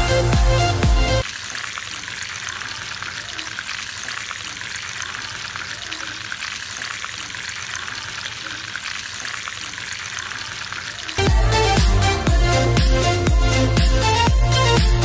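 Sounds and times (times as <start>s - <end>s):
food deep-frying in oil: 1.2s - 11.2s.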